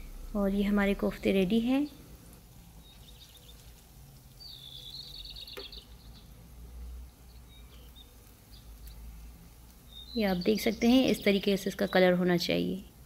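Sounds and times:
deep-frying sizzle: 0:00.0 - 0:13.0
high chirping trill: 0:04.4 - 0:06.4.

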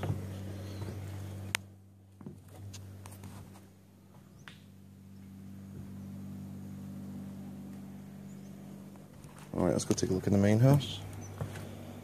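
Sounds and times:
footsteps on wooden floor: 0:00.0 - 0:01.3, 0:11.3 - 0:11.8
steady low hum: 0:00.0 - 0:12.0.

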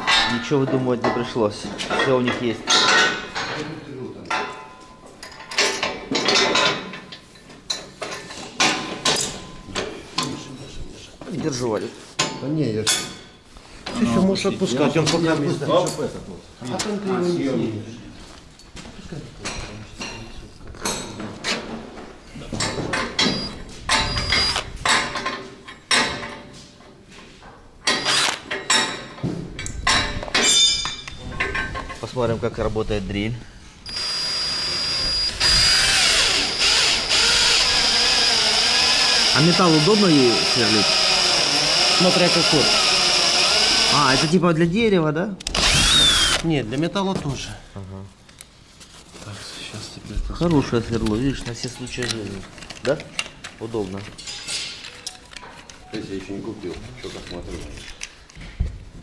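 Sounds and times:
metallic clanks and knocks: 0:00.0 - 0:03.7, 0:04.3 - 0:10.4, 0:22.5 - 0:24.1, 0:24.8 - 0:26.6, 0:27.8 - 0:32.1
heavy metal parts clanking: 0:27.9 - 0:32.0.

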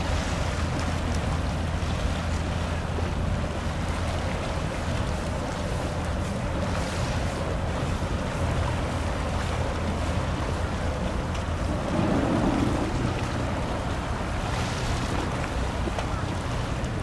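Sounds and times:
ship engine low drone: 0:00.0 - 0:17.0
water washing: 0:08.0 - 0:17.0
wind on microphone: 0:09.8 - 0:17.0.

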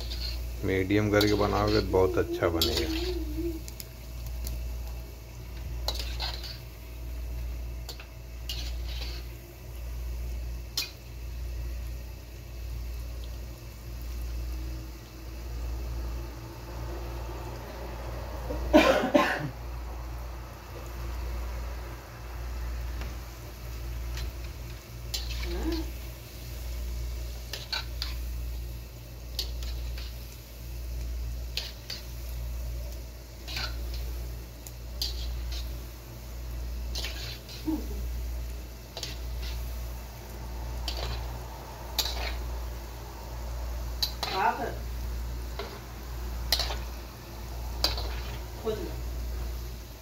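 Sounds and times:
spatula scraping a wok: 0:00.0 - 0:03.6, 0:05.6 - 0:07.0, 0:07.8 - 0:09.4, 0:24.0 - 0:28.3, 0:29.3 - 0:30.3, 0:31.4 - 0:32.2, 0:33.3 - 0:38.2, 0:38.8 - 0:40.0, 0:40.6 - 0:43.3, 0:43.9 - 0:48.7
food frying in oil: 0:00.0 - 0:18.8, 0:19.4 - 0:50.0
person coughing: 0:18.7 - 0:19.6.

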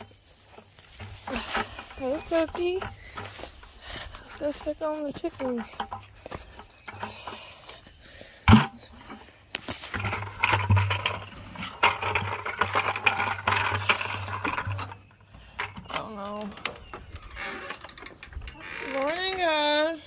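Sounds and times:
rustling and scuffing: 0:00.0 - 0:13.3
plastic bucket thudding on dirt: 0:08.4 - 0:13.8.

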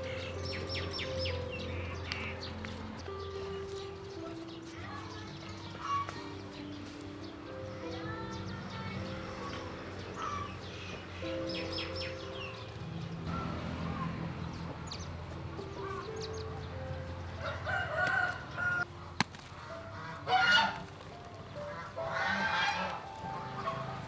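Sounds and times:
chickens calling: 0:00.0 - 0:24.0
soft background music: 0:00.0 - 0:24.0
rooster crowing: 0:17.4 - 0:18.9.

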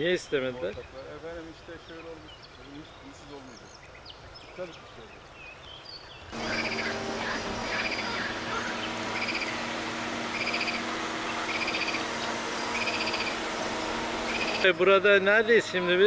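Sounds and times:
frogs croaking: 0:06.3 - 0:13.6
steady low hum: 0:06.3 - 0:16.0.

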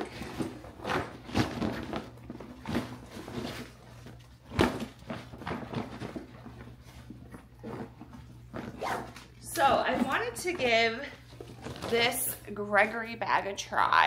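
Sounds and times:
nylon bag rustling and crinkling: 0:11.4 - 0:12.3.

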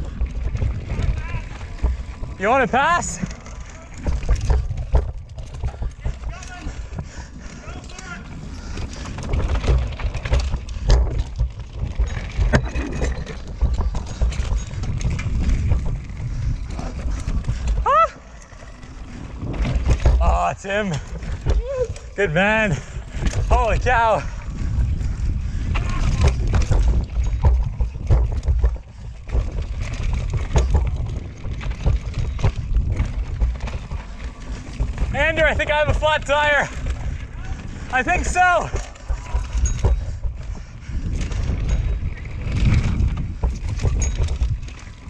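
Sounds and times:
bike clacking on rocks: 0:00.0 - 0:45.0
tyres rolling over dirt and rock: 0:00.0 - 0:45.0
wind buffeting microphone: 0:00.0 - 0:45.0.

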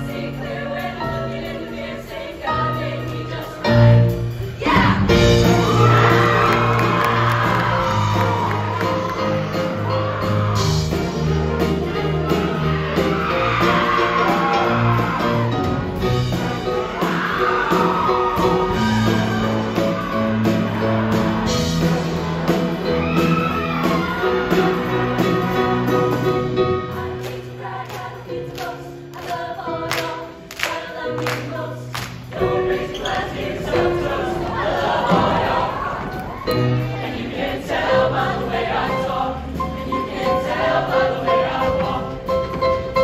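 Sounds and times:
choir singing upbeat song: 0:00.0 - 0:43.0
live band playing: 0:02.7 - 0:27.2.

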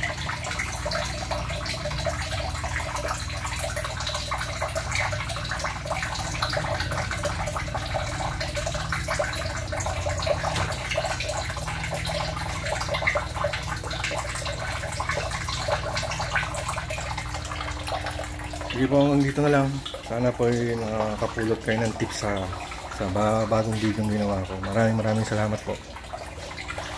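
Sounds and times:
small water drips: 0:00.0 - 0:26.9
water trickling and splashing: 0:00.0 - 0:26.9.

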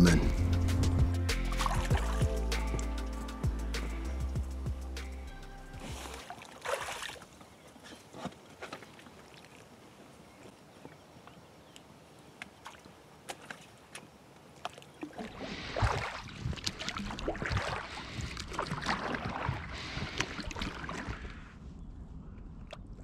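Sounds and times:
water splashing around a boat: 0:01.3 - 0:02.9, 0:05.8 - 0:10.8, 0:12.2 - 0:21.6.

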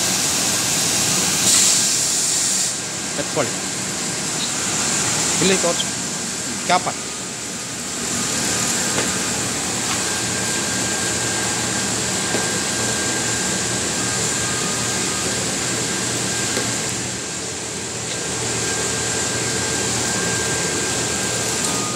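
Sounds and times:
air blower humming: 0:00.0 - 0:21.9
faint high whine: 0:04.4 - 0:21.9.

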